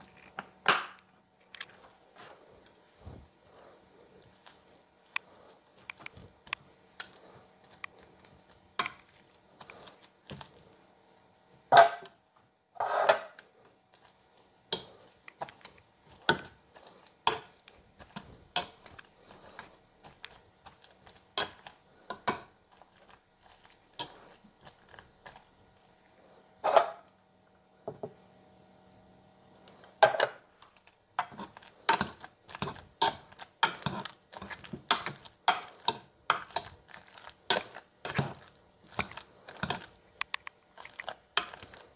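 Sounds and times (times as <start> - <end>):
potato masher knocking in a saucepan: 34.6 - 36.6.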